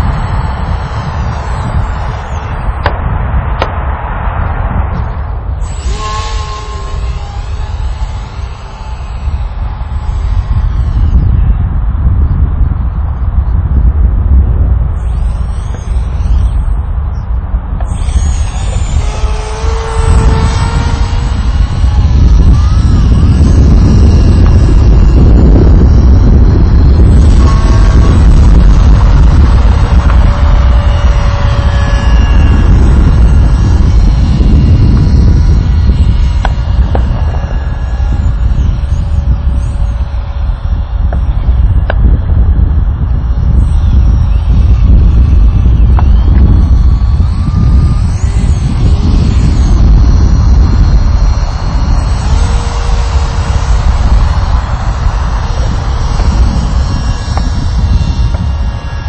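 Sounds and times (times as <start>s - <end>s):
model plane motor whine: 0.0s - 3.0s, 5.1s - 59.0s
wind buffeting microphone: 0.0s - 59.0s.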